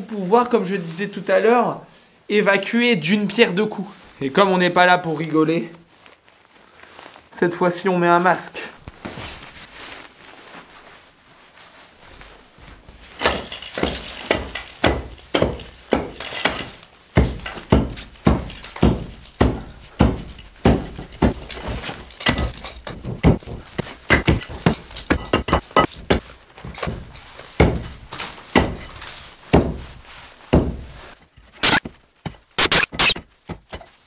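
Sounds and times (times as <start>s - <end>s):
debris clinking and breaking: 13.0s - 27.8s.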